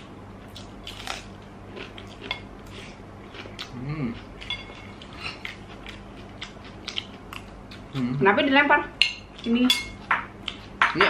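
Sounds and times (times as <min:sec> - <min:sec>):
metal spoon clinking on plate: 0:09.0 - 0:10.2.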